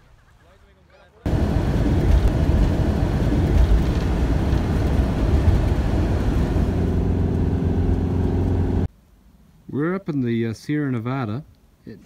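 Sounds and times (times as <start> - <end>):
vehicle engine and road noise: 1.3 - 8.9.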